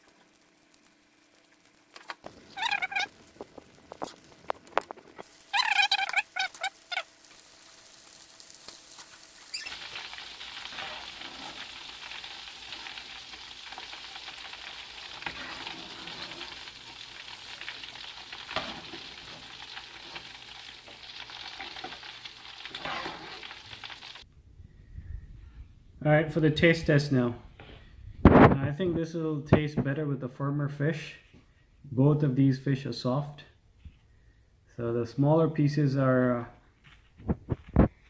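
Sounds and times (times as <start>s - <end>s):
fish deep-frying in hot oil: 0.0s - 24.3s.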